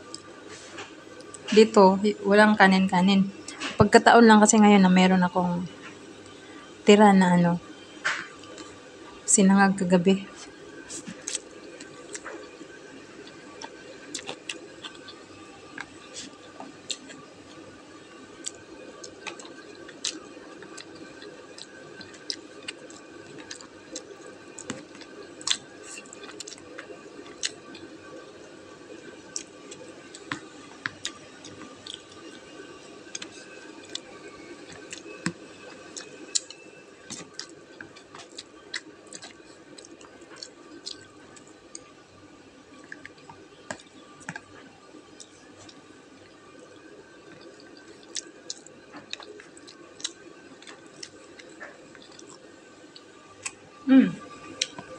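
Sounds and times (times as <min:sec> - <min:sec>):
person chewing noodles: 0:00.0 - 0:01.5, 0:10.3 - 0:17.8, 0:18.4 - 0:42.0, 0:42.7 - 0:53.6, 0:54.4 - 0:54.9
faint hum: 0:00.0 - 0:54.9.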